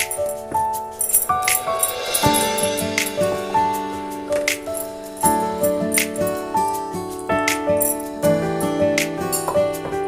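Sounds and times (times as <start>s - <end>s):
light percussive hits: 0.0s - 6.8s
held melodic notes: 0.0s - 10.0s.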